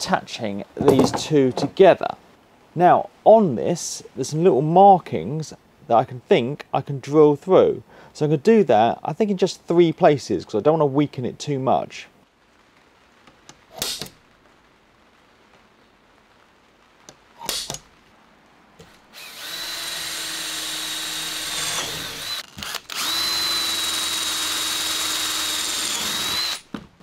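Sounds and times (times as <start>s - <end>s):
short knocks: 0.8s - 1.9s
cordless drill boring through metal: 19.2s - 26.7s.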